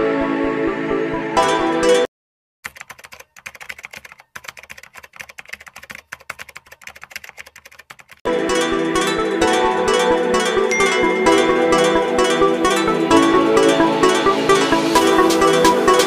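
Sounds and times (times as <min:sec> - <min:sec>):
background music: 0:00.0 - 0:02.1, 0:08.3 - 0:16.0
keyboard key clicks: 0:02.7 - 0:08.2.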